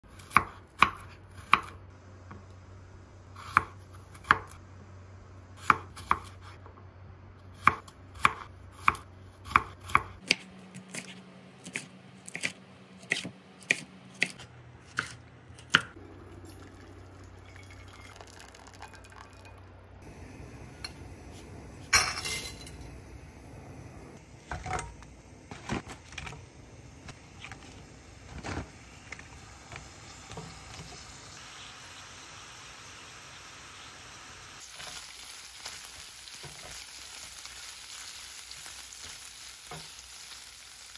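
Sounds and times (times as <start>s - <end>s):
knife chopping on cutting board: 7.6s - 15.9s.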